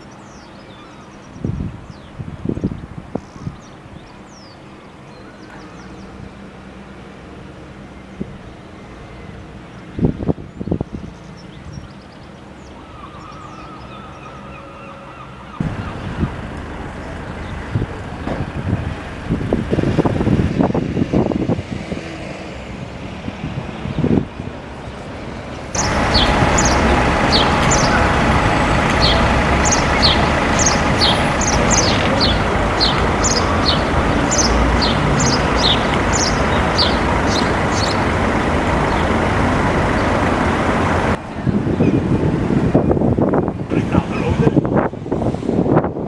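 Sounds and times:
small birds chirping: 0.0 - 6.3, 7.8 - 17.9, 25.7 - 39.3
diesel buses running: 0.0 - 46.0
diesel bus engine idling: 15.1 - 20.8, 23.8 - 43.4.

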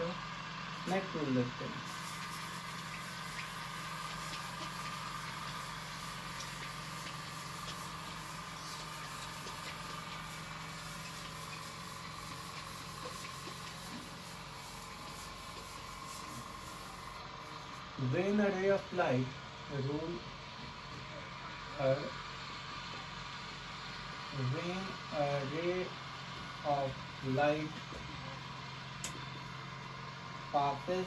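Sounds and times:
hiss: 1.8 - 17.6
hand rubbing whiteboard: 2.1 - 16.9.

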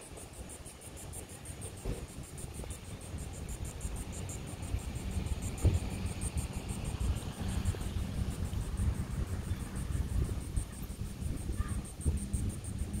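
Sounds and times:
insects chirping: 0.0 - 13.0
steady low rumble: 0.0 - 13.0.

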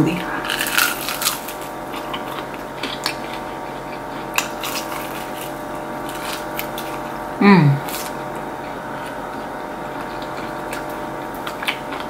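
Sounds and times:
steady low hum: 0.0 - 12.0
crunching fried chicken: 0.3 - 12.0
wet chewing clicks: 9.0 - 12.0.

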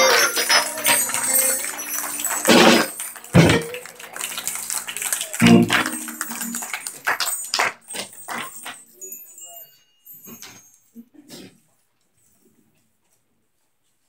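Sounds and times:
held musical chord: 0.0 - 7.2.

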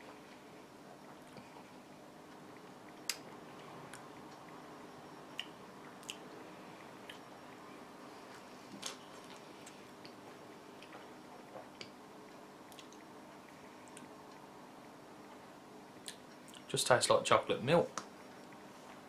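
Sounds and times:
faint steady hum: 0.0 - 19.0
lip smacks and mouth clicks: 5.3 - 6.3, 12.7 - 13.1, 16.0 - 16.6.

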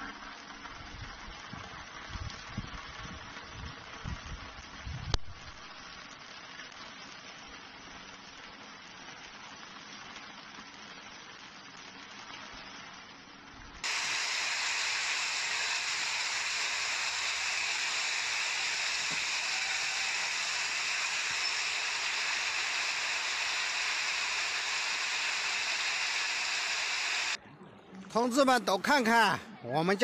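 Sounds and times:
water rushing: 13.8 - 27.4.

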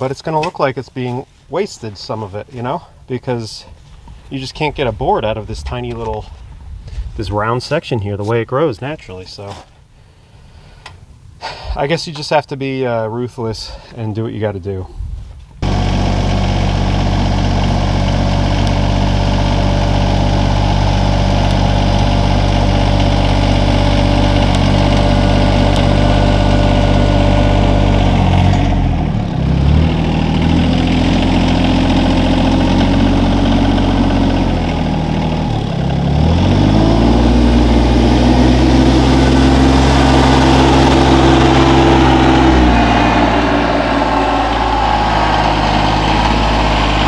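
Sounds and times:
loader scooping sawdust: 15.6 - 47.0
tractor engine running: 15.6 - 47.0.

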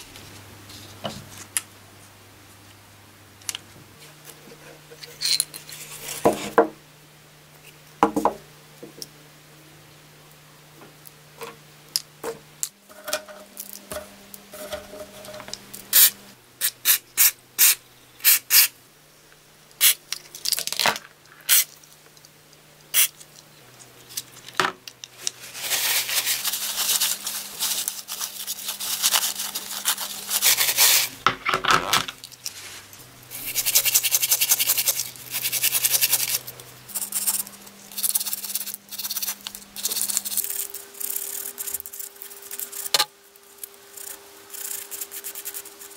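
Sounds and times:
small metal parts clinking: 5.0 - 5.7
wire brush scrubbing metal: 25.3 - 31.2, 32.5 - 43.0.

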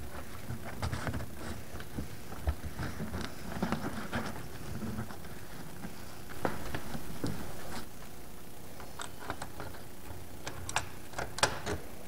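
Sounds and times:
metal hardware clicking: 10.4 - 11.9.

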